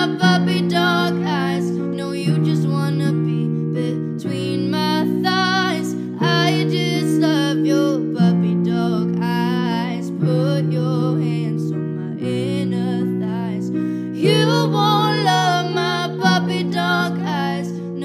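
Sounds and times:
held chords: 0.0s - 18.0s
woman singing pop song: 0.0s - 18.0s.

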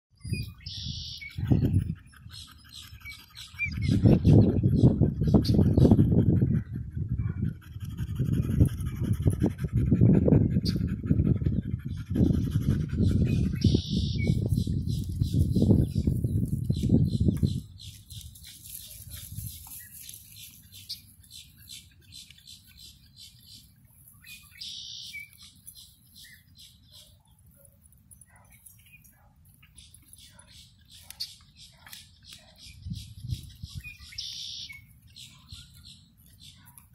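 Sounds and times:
faint bird chirps: 0.2s - 4.1s, 13.4s - 16.5s, 18.6s - 27.3s, 28.5s - 36.8s
wind buffeting microphone: 0.2s - 20.8s, 32.6s - 34.3s.

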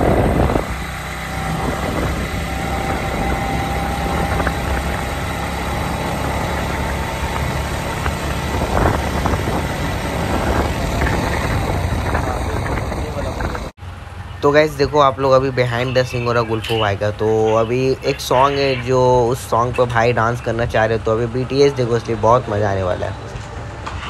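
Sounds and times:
motorcycle engine running: 0.0s - 14.4s
wind rushing over microphone: 0.0s - 21.4s.

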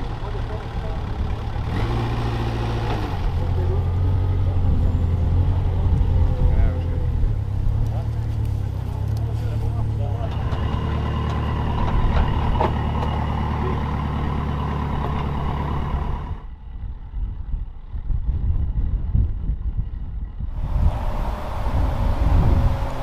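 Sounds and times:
diesel engine running: 0.0s - 18.0s, 19.7s - 23.0s
wind rumble on microphone: 15.9s - 23.0s.

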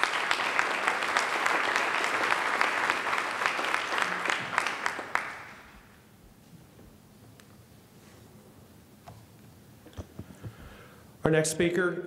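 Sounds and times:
audience applause: 0.0s - 6.0s.

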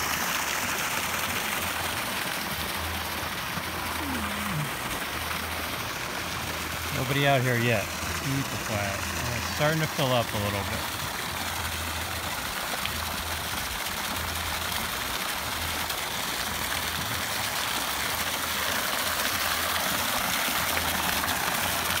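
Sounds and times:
water splashing into pool: 7.8s - 22.0s.

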